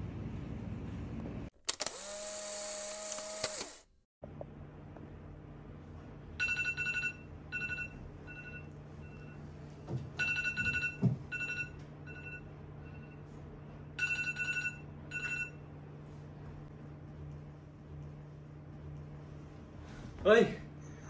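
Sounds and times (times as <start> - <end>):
alarm clock beeping: 6.4 - 9.4, 10.2 - 13.2, 14.0 - 15.6.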